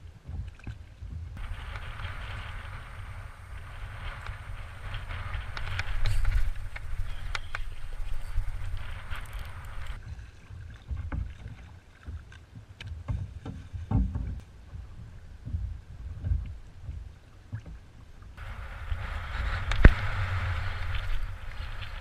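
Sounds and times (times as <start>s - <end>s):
wind buffeting microphone: 0.2s - 10.2s, 18.4s - 22.0s
knocks and taps on kayak: 10.9s - 17.8s.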